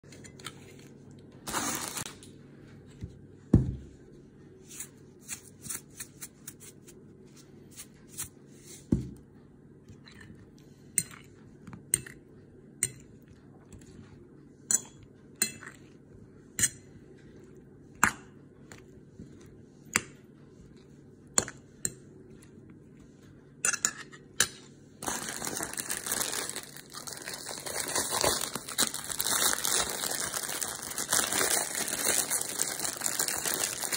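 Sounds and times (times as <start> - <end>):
crunchy rustling: 25.0 - 33.9.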